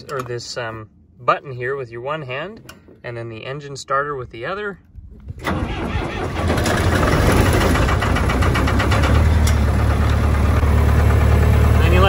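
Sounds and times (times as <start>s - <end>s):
diesel engine starting and running: 4.8s - 12.0s.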